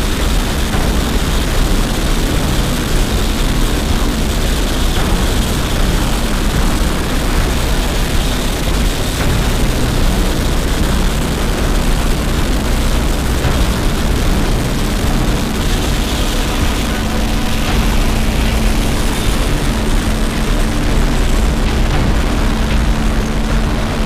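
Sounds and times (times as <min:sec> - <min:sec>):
helicopter rotor and turbine: 0:00.0 - 0:24.0.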